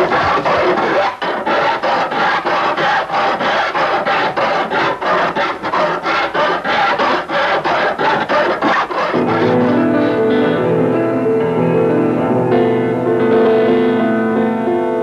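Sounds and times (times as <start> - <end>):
hand file rasping over metal: 0.0 - 9.8
music with held notes: 7.2 - 15.0.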